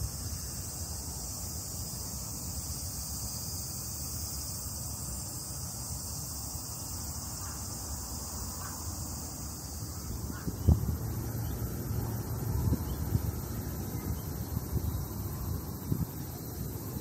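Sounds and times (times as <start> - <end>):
insects chorus: 0.0 - 17.0
wind rumble on microphone: 9.9 - 17.0.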